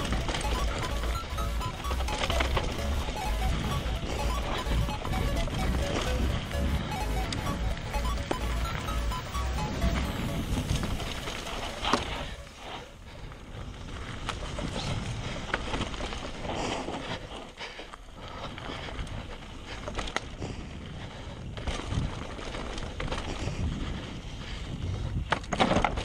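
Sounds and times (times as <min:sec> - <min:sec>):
bike rattling and knocking: 0:00.0 - 0:12.5, 0:13.8 - 0:26.0
tyres on dirt: 0:00.0 - 0:26.0
wind buffeting microphone: 0:23.2 - 0:25.3
wheels clattering on wooden ramp: 0:25.3 - 0:26.0.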